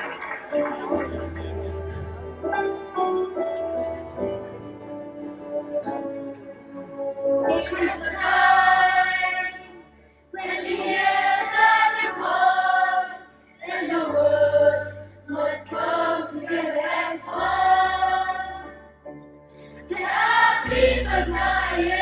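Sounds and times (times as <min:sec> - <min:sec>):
children's choir singing: 0:07.4 - 0:18.9, 0:19.8 - 0:22.0.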